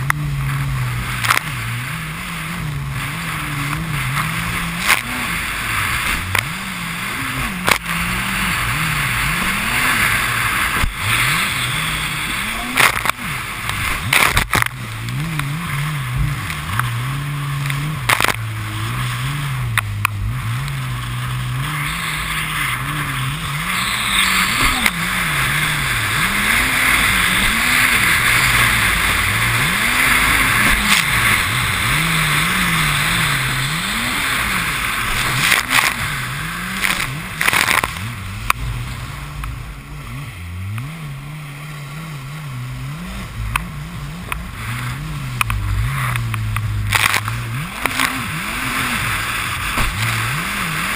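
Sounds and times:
jet ski engine revving: 0.0s - 50.9s
hull hitting water: 49.5s - 50.3s.

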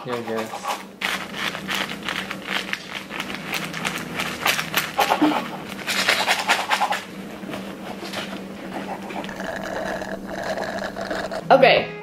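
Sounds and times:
paper wrappers crinkling: 0.0s - 6.2s
steady low hum: 0.0s - 12.0s.

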